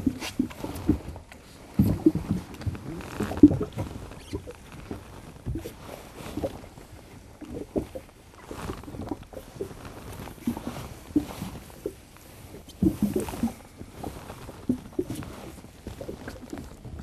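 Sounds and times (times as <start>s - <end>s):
fabric rustles and small knocks: 0.0s - 17.0s.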